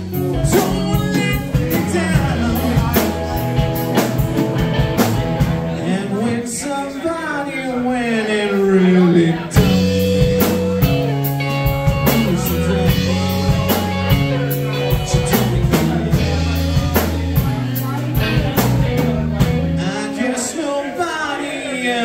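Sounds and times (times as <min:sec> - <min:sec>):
drum kit beat: 0:00.0 - 0:05.9, 0:09.5 - 0:20.1
electric guitar: 0:00.0 - 0:06.5, 0:09.1 - 0:20.6
electric bass: 0:00.0 - 0:06.6, 0:09.1 - 0:20.5.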